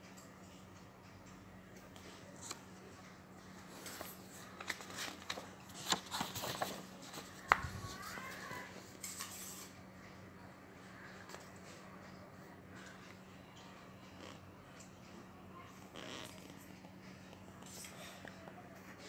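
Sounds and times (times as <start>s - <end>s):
paper crackling: 3.8s - 8.6s
paper rustle: 3.8s - 9.5s.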